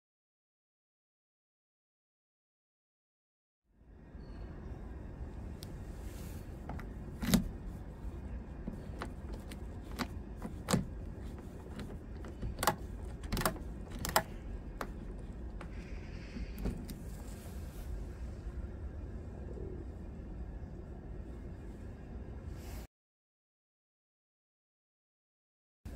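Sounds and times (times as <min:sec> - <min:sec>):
key clicking in door lock: 0:06.7 - 0:07.6, 0:08.7 - 0:15.8.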